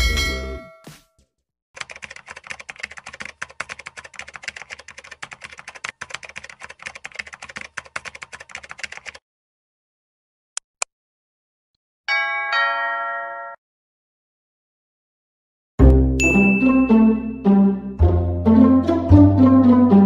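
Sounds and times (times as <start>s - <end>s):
keyboard typing clicks: 1.8s - 9.2s
intro music: 15.8s - 20.0s.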